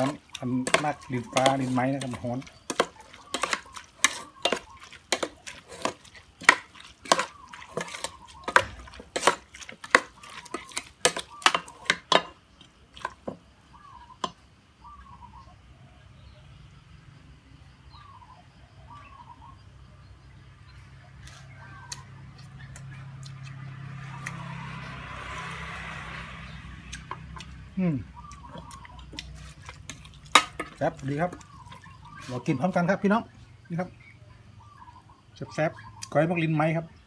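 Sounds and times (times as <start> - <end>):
metal spoon scraping a pot: 0.0 - 12.4, 28.5 - 32.5.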